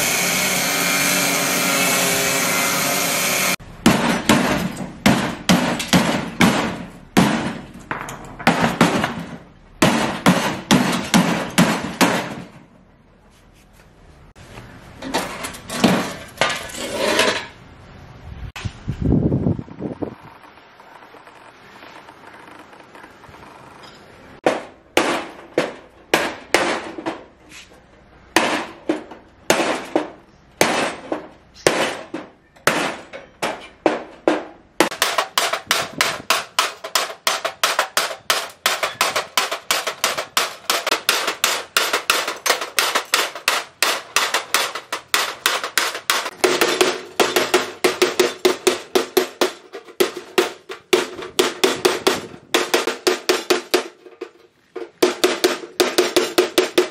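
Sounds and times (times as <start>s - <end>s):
hammer striking metal door: 3.8s - 12.6s, 28.4s - 56.9s.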